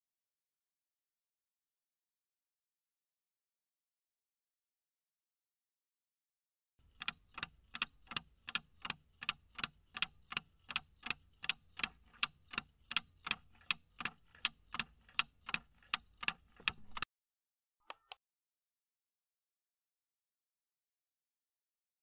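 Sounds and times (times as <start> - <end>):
clock ticking: 6.8 - 17.1
sharp clicks: 15.5 - 17.1.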